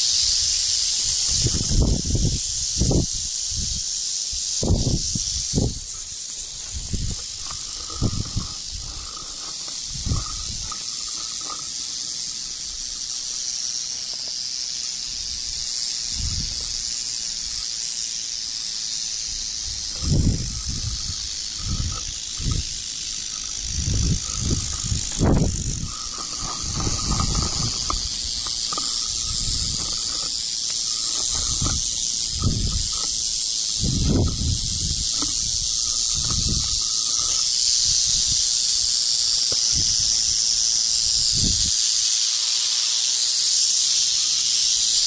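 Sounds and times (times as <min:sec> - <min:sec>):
rattlesnake rattling: 0:00.0 - 0:45.0.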